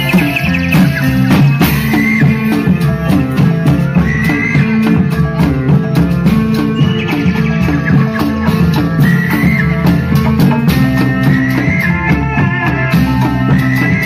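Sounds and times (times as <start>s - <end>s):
drumming and rattling percussion: 0.0s - 14.0s
higher melodic line: 0.0s - 14.0s
low repeating melody: 0.0s - 14.0s.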